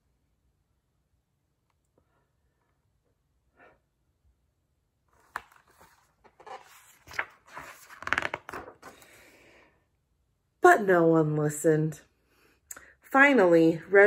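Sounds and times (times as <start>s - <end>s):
book pages rustling and turning: 5.1s - 9.2s.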